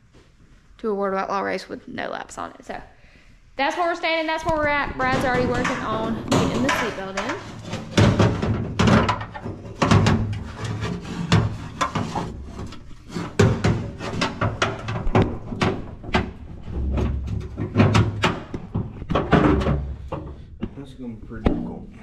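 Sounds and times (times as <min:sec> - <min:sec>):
knocks and rattles of harness: 0:04.5 - 0:20.8.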